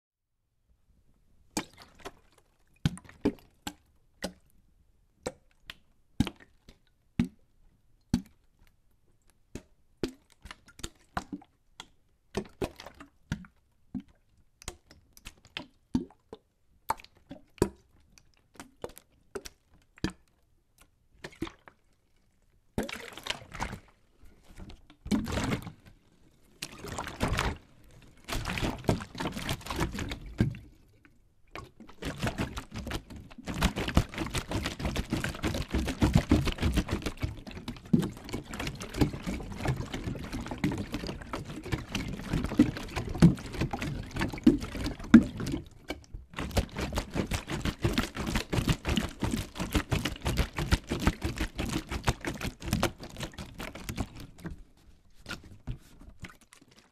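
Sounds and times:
water sloshing in plastic bottle: 0:21.2 - 0:56.9.

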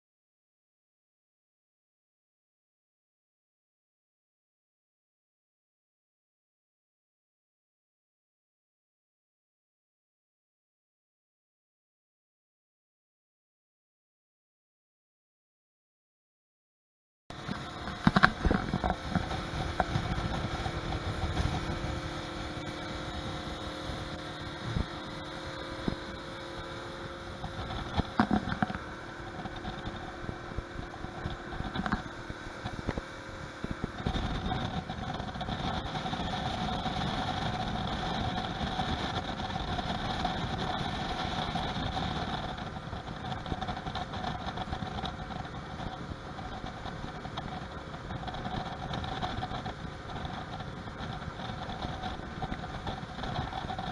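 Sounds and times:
hull thumping on waves: 0:17.3 - 0:53.9
outboard motor running: 0:17.3 - 0:53.9
rushing wind and water: 0:17.3 - 0:53.9.

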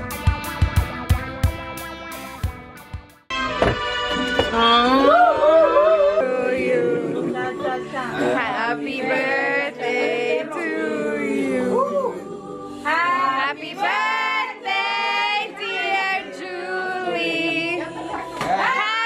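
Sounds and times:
group singing a birthday song: 0:05.1 - 0:19.0.

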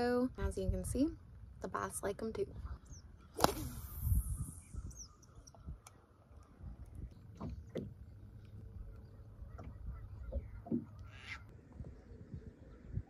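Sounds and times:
wind rumble on microphone: 0:00.0 - 0:13.0
fishing rod swish: 0:03.4 - 0:04.7
fishing line hissing off spool: 0:03.4 - 0:05.0.

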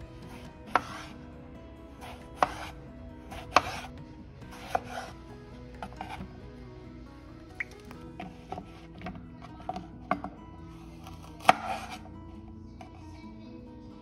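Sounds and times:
knife chopping on cutting board: 0:00.7 - 0:01.1, 0:02.0 - 0:03.9, 0:04.5 - 0:05.2, 0:05.8 - 0:06.3, 0:11.0 - 0:12.0.

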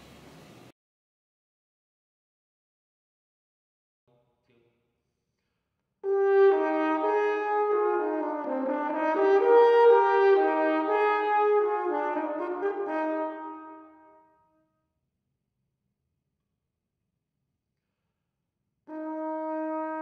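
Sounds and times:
french horn playing held notes: 0:06.0 - 0:14.4, 0:18.9 - 0:20.0.

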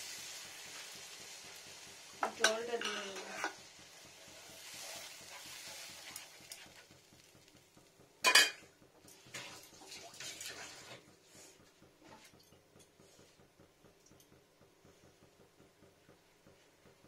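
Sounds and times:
paste poured into simmering pan: 0:03.4 - 0:07.5.

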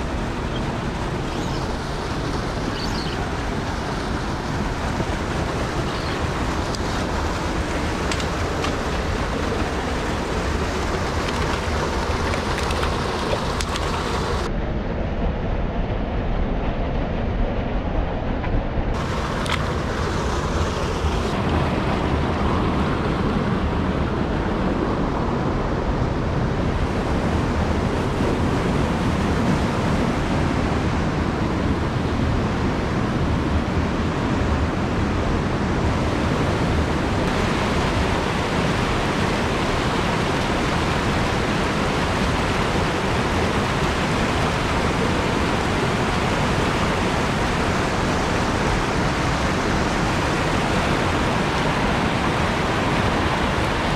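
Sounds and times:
stream rushing over rocks: 0:00.0 - 0:14.5, 0:19.0 - 0:24.8, 0:34.2 - 0:53.9.

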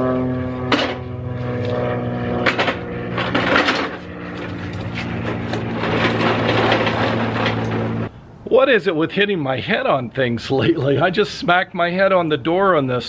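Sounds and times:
grill rattling over asphalt: 0:00.0 - 0:08.1
engine idling: 0:00.1 - 0:08.1.

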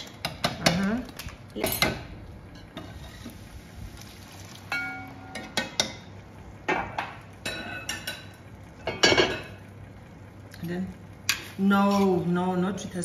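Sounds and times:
cookware clinking and knocking: 0:06.7 - 0:09.6.

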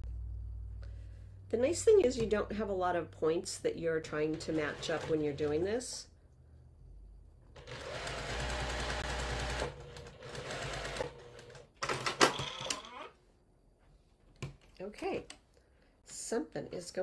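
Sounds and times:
sewing machine stitching: 0:04.1 - 0:05.7, 0:07.6 - 0:12.9.

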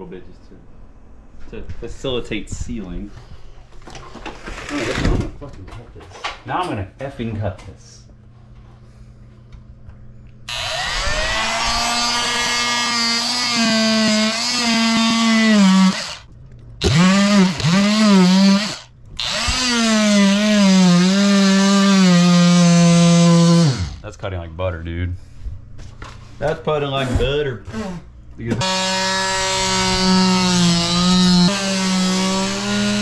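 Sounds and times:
power saw cutting plastic pipe: 0:10.5 - 0:24.0, 0:27.7 - 0:33.0.

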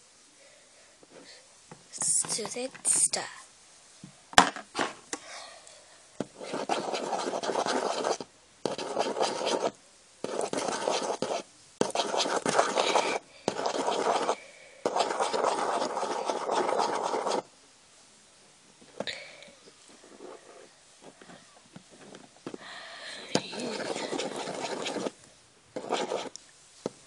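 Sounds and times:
fingers rubbing on microphone: 0:23.5 - 0:25.2, 0:25.8 - 0:26.3.

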